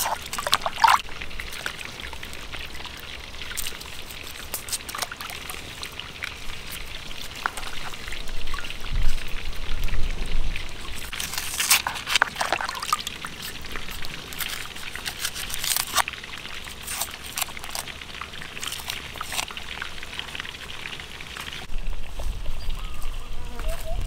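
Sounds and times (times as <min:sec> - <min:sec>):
water trickling into basin: 0:00.0 - 0:23.0
knife peeling onion skin: 0:11.1 - 0:12.4, 0:13.4 - 0:16.1, 0:16.7 - 0:17.9, 0:18.6 - 0:19.5.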